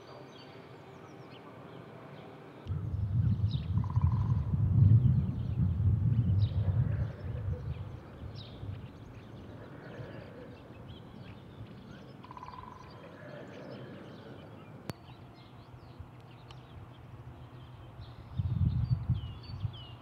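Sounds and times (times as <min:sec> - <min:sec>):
small birds chirping: 0:00.1 - 0:20.0
faint low rumble: 0:02.7 - 0:12.0.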